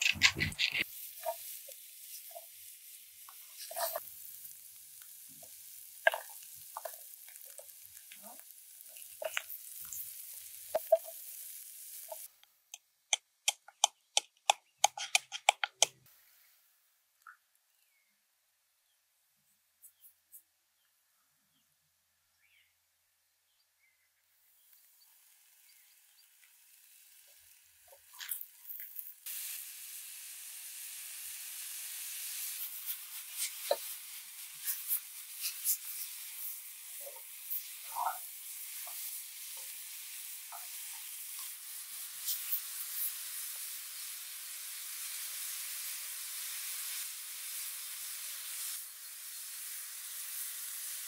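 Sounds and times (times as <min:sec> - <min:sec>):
pan clicks and scrapes: 0:00.0 - 0:01.4, 0:14.8 - 0:15.9
mushrooms sizzling in a frying pan: 0:00.0 - 0:12.6, 0:24.5 - 0:51.0.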